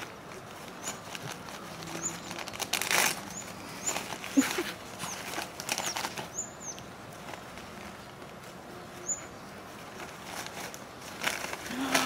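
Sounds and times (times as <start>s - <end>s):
wrapping paper rustling and tearing: 0.0s - 6.3s, 9.7s - 12.0s.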